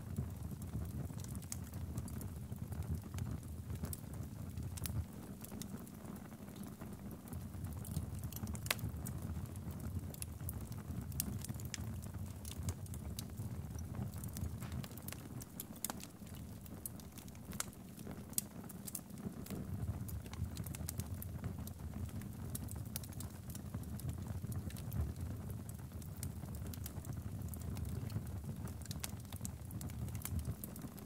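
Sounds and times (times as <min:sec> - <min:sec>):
burning logs crackling and popping: 0:00.0 - 0:31.0
flames rushing: 0:08.2 - 0:23.4.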